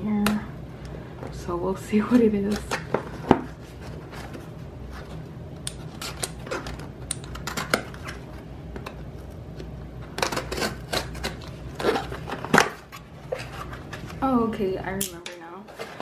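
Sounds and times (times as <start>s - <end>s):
packaging crinkling and rustling: 5.8s - 14.3s.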